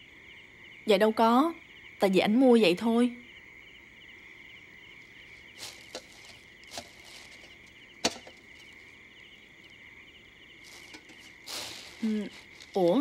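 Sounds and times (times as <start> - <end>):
crickets chirping: 0.0 - 13.0
wrapping paper rustling: 5.6 - 8.8, 10.6 - 13.0
metal tin clicks and knocks: 8.0 - 8.4, 10.9 - 11.3.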